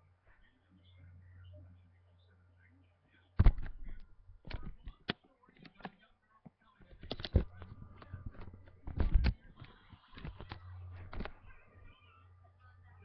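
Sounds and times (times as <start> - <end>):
phone handling noise: 3.4 - 6.0, 6.9 - 11.4.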